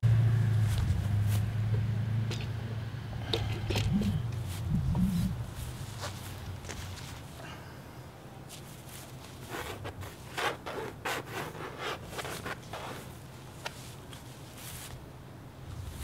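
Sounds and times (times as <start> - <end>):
brush rubbing on canvas: 4.4 - 7.3, 8.5 - 15.0.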